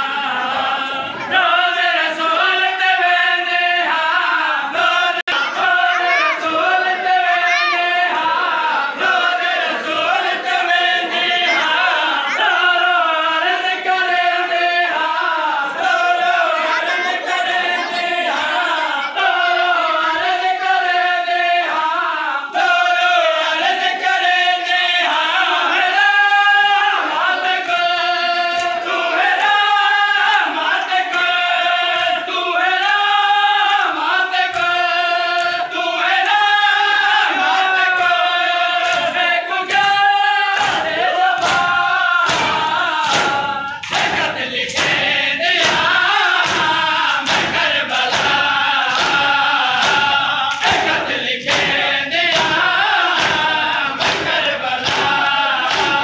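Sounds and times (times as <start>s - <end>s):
men chanting in unison: 0.0s - 56.0s.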